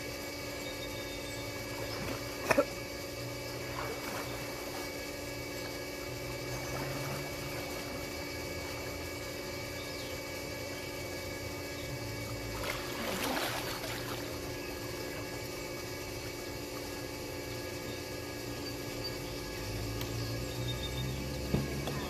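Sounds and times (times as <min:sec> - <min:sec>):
mechanical hum: 0:00.0 - 0:22.0
water sloshing in a pool: 0:03.4 - 0:09.4, 0:12.1 - 0:15.4.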